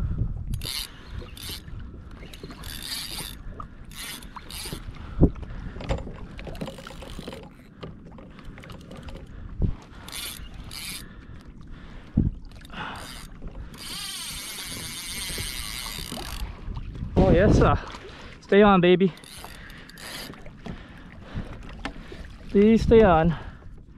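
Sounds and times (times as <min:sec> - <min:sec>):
fishing reel buzzing: 0:00.5 - 0:05.0, 0:06.6 - 0:07.7, 0:10.0 - 0:11.2, 0:12.5 - 0:16.5, 0:19.1 - 0:20.4.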